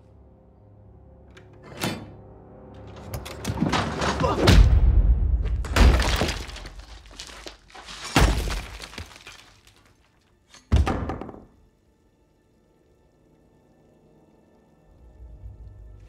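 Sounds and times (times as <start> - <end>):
faint music drone: 0.0 - 5.4, 11.5 - 16.0
debris shattering: 3.2 - 10.2
heavy thuds and crashes: 3.6 - 9.4.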